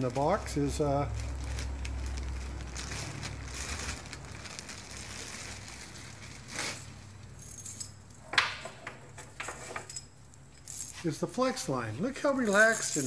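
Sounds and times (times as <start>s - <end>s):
plastic bag rustling: 0.0s - 7.6s
metal hose being handled: 9.1s - 13.0s.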